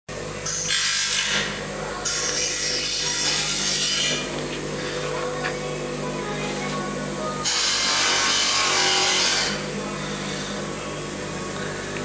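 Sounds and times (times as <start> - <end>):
steady low hum: 0.1 - 12.0
harsh rasping tool noise: 0.5 - 4.3, 7.4 - 10.6.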